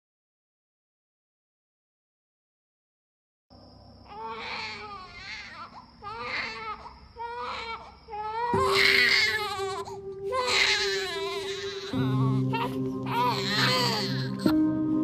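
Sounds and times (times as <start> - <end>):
baby crying: 4.1 - 14.6.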